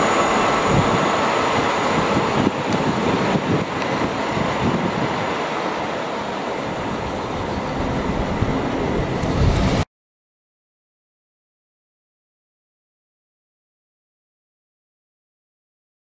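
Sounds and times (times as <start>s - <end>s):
train wheels on rails: 0.0s - 9.9s.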